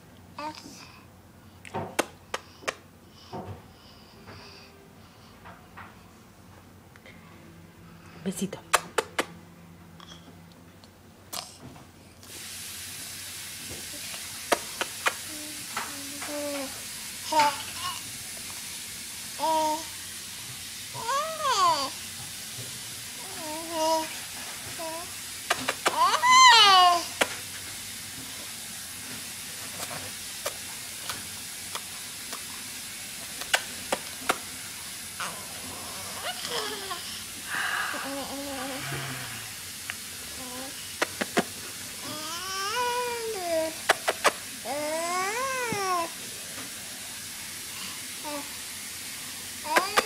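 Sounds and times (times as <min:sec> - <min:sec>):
baby lip-smacking pops: 0:01.7 - 0:02.8, 0:08.7 - 0:09.3, 0:14.5 - 0:16.0, 0:25.5 - 0:26.0, 0:33.4 - 0:34.4, 0:41.0 - 0:41.5, 0:43.9 - 0:44.4, 0:49.7 - 0:50.0
baby's lips smacking: 0:08.7 - 0:09.3, 0:25.5 - 0:26.0, 0:33.4 - 0:34.4, 0:43.9 - 0:44.4, 0:49.7 - 0:50.0
steady hiss: 0:12.2 - 0:50.0
baby cooing: 0:21.0 - 0:22.0, 0:23.2 - 0:24.2, 0:24.8 - 0:27.2, 0:35.2 - 0:37.2, 0:37.9 - 0:39.5, 0:42.0 - 0:46.2, 0:49.6 - 0:50.0.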